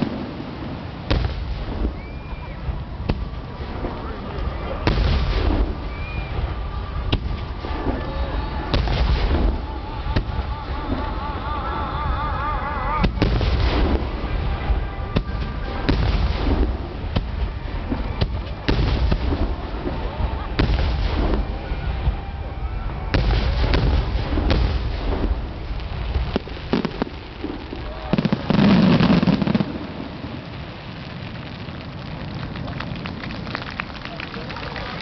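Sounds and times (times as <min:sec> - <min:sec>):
crowd voices: 0:00.0 - 0:35.0
firework booms and crackle: 0:00.0 - 0:35.0.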